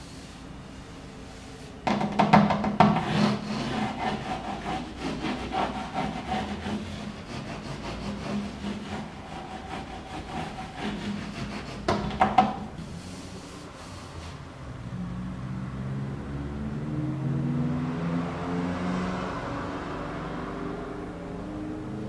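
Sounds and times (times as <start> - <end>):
hand rubbing textured wall covering: 0.0 - 14.4.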